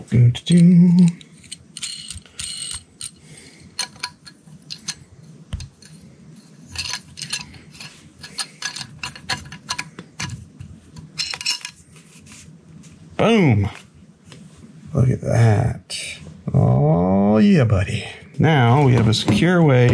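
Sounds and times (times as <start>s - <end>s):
metal bolt and nut clinking: 0.5s - 3.2s, 3.8s - 5.0s, 6.7s - 10.4s, 11.1s - 11.8s.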